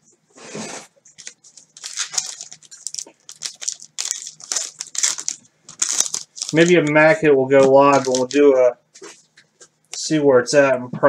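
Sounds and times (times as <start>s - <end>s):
foil wrappers crinkling: 1.1s - 8.6s.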